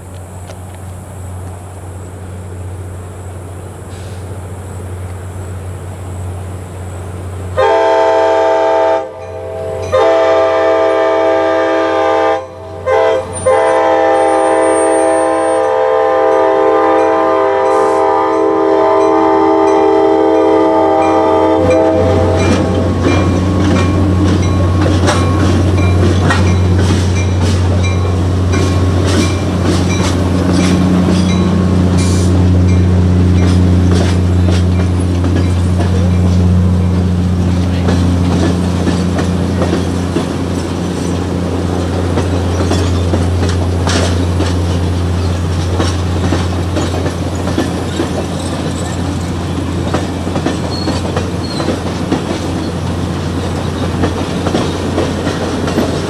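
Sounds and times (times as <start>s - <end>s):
locomotive engine rumble: 0.0s - 56.0s
locomotive horn blasts: 7.6s - 23.4s
train wheels clicking over rail joints: 13.2s - 56.0s.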